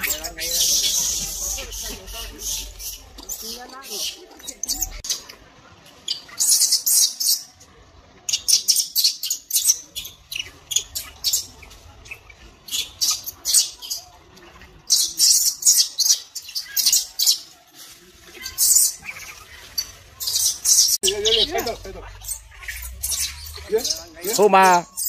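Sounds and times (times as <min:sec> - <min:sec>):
baby monkey squealing: 0:18.4 - 0:25.0.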